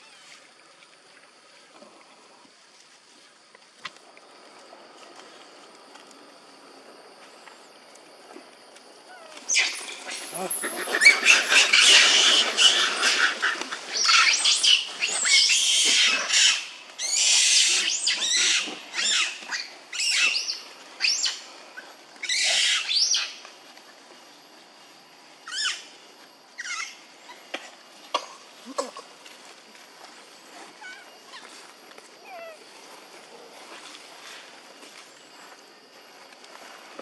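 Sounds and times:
monkeys screaming: 0:09.2 - 0:21.4, 0:22.2 - 0:23.3, 0:26.6 - 0:27.0.

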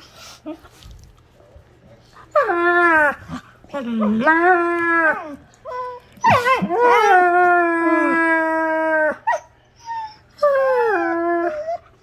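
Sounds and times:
wolfdog howling: 0:02.3 - 0:09.4.

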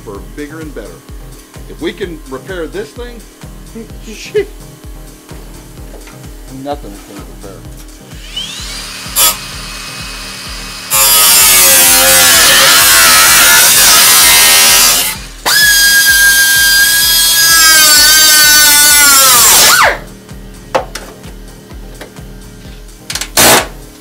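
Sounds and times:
angle grinder cutting sheet steel: 0:08.1 - 0:20.1.

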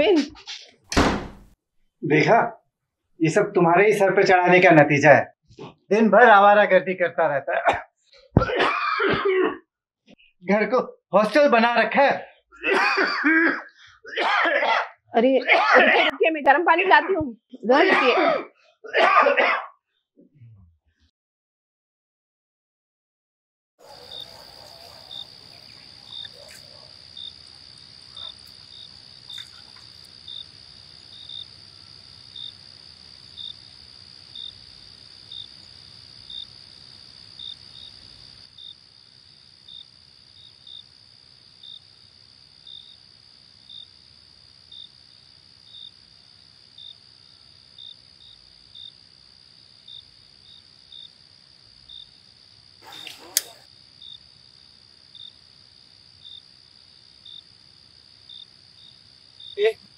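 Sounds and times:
cricket chirp: 0:23.8 - 0:59.9
crickets trilling: 0:23.8 - 0:59.9.

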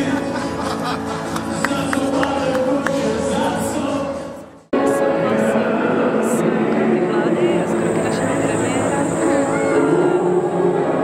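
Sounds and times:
choir singing: 0:04.8 - 0:11.0.

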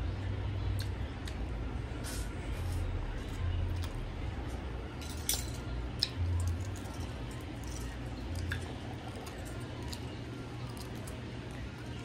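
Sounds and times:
wet squishy chewing: 0:06.0 - 0:12.0.

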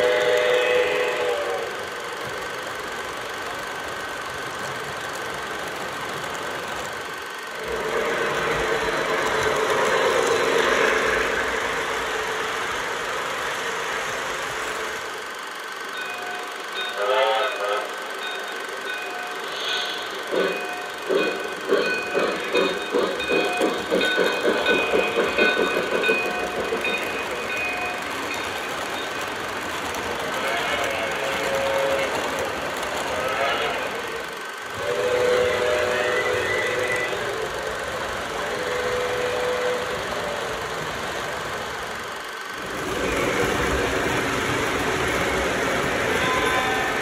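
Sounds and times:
coaches rolling on track: 0:00.0 - 0:17.0, 0:20.2 - 0:47.0
model steam locomotive chuffing: 0:00.0 - 0:47.0.

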